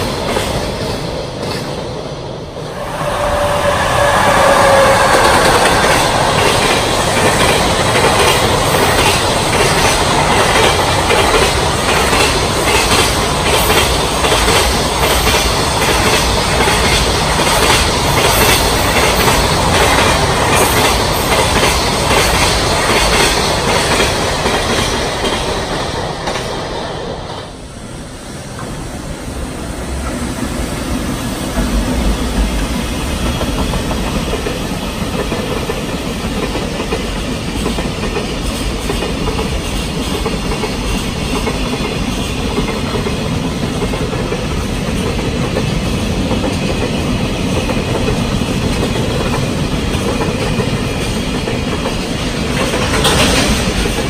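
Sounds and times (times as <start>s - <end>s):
train low rumble: 0.0s - 54.0s
train wheels clattering over joints: 31.6s - 54.0s.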